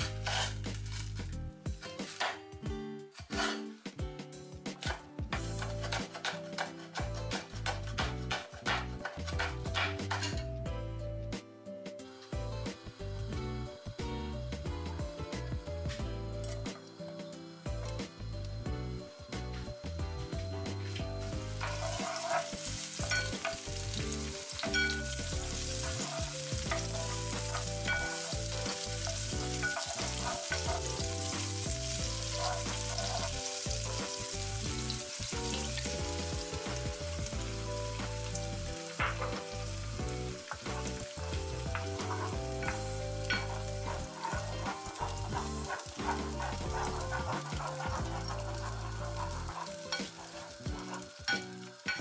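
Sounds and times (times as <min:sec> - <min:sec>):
wooden spatula scraping pan: 0:00.0 - 0:01.0, 0:03.2 - 0:03.8, 0:04.8 - 0:10.4, 0:21.4 - 0:34.9, 0:40.4 - 0:52.0
food sizzling in oil: 0:00.0 - 0:01.3, 0:04.8 - 0:10.4, 0:12.0 - 0:52.0.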